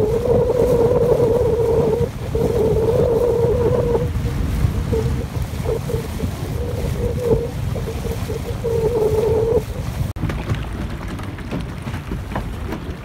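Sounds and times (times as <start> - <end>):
wavering whine: 0.0 - 9.8
boat engine running: 0.0 - 13.0
wind rumbling on microphone: 0.0 - 13.0.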